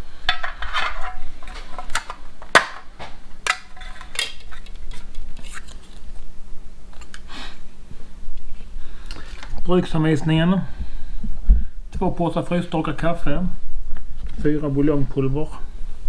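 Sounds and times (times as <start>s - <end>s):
metal tin clinking and tapping: 0.3s - 2.8s.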